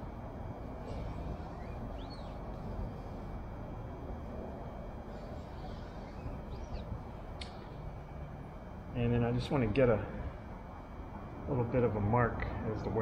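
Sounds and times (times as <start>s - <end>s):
low workshop hum: 0.0s - 13.0s
chirps rising and falling in pitch: 0.8s - 3.2s, 5.1s - 7.8s.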